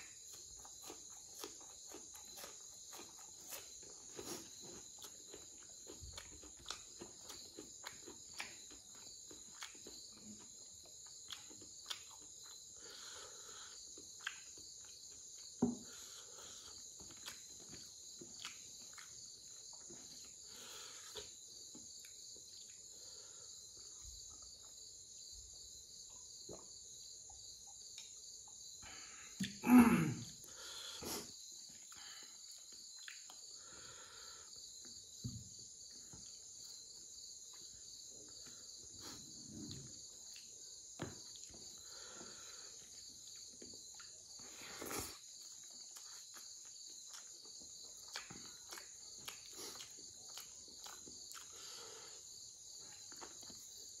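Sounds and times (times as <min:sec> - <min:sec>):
crickets chirping: 0:00.0 - 0:54.0
chewing clicks: 0:05.0 - 0:10.0, 0:11.1 - 0:12.6, 0:32.6 - 0:33.5, 0:44.8 - 0:51.6.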